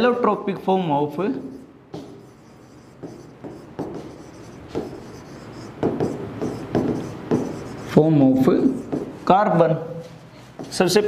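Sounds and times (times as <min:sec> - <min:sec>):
stylus scratching and tapping screen: 0:01.4 - 0:09.1.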